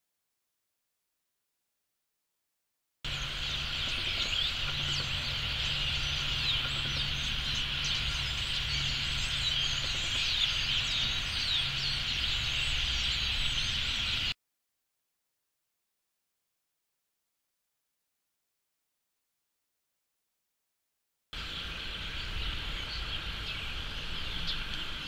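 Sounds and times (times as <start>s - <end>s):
steady low rumble: 3.1s - 14.3s
flock of birds calling: 3.1s - 14.4s, 21.4s - 25.0s.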